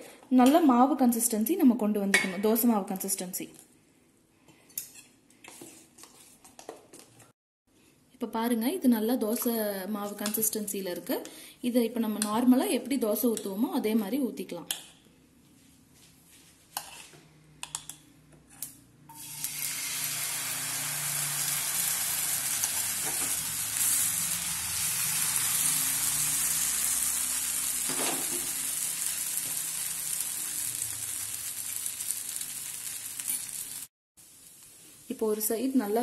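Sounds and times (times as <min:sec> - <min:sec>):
batter sizzling in pan: 0:19.2 - 0:36.0.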